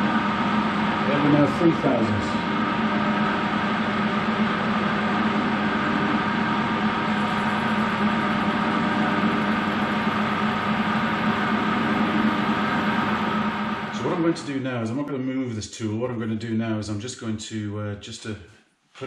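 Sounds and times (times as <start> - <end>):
metal lathe humming: 0.0 - 14.4.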